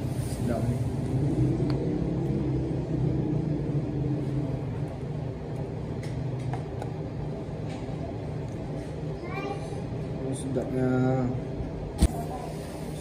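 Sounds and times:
low hum: 0:00.0 - 0:08.9.

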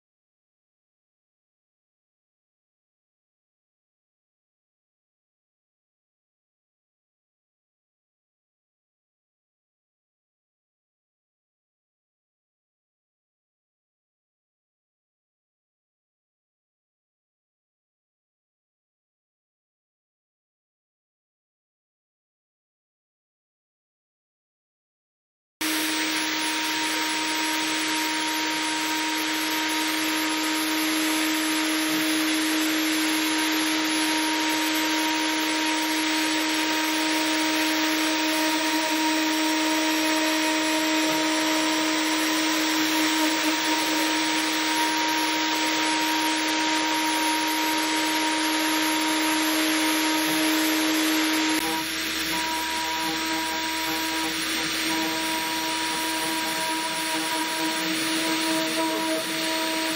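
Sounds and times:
router spindle humming: 0:25.6 - 0:59.9
bit rasping into wood: 0:38.2 - 0:59.9.

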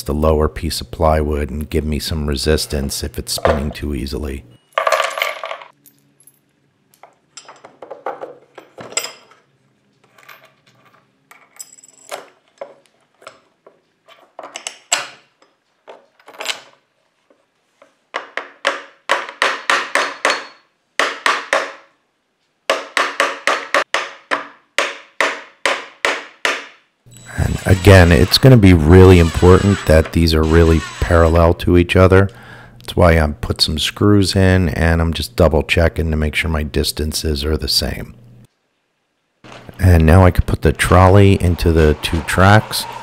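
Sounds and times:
metal bolts and washers clinking: 0:04.7 - 0:16.8.

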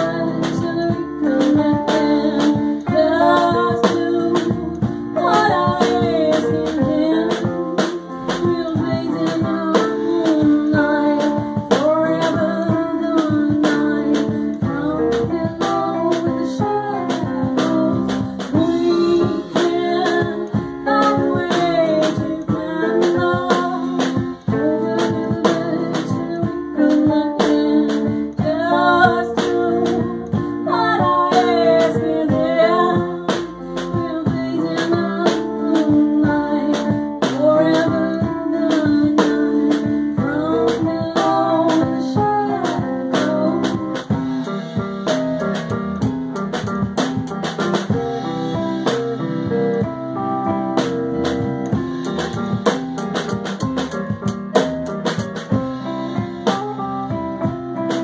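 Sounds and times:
woman singing: 0:00.0 - 0:44.6
live band playing: 0:00.0 - 0:58.0.

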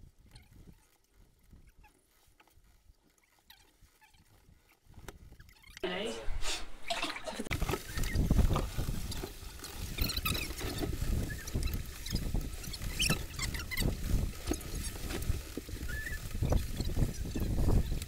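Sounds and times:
wind gusting over microphone: 0:07.5 - 0:18.0.

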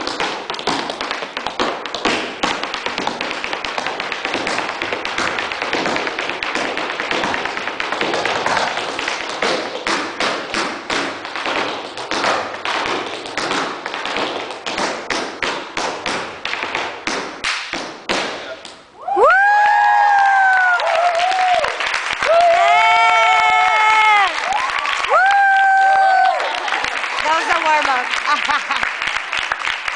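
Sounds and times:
tap shoes on hardwood floor: 0:00.0 - 0:18.8
audience whooping: 0:19.0 - 0:27.0.

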